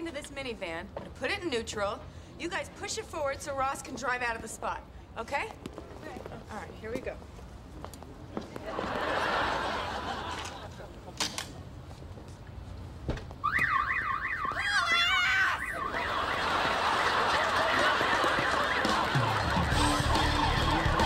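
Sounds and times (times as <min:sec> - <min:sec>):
audience laughing: 0:08.6 - 0:10.9, 0:15.8 - 0:21.0
car alarm warbling siren: 0:13.4 - 0:20.8
audience applauding: 0:15.9 - 0:21.0.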